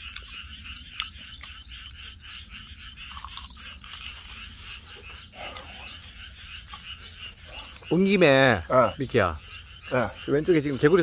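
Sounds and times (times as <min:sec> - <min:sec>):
frogs calling: 0:00.0 - 0:11.0
person biting and chewing: 0:03.0 - 0:04.4.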